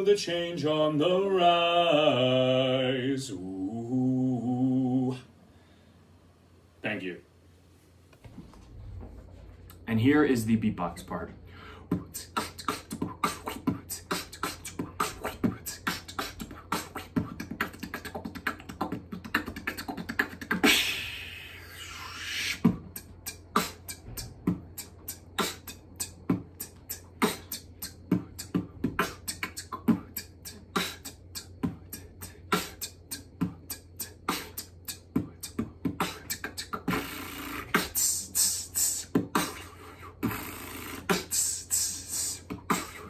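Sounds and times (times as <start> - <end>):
breathy hiss: 2.0 - 8.1, 9.2 - 19.0, 19.7 - 43.0
person beatboxing: 10.8 - 43.0.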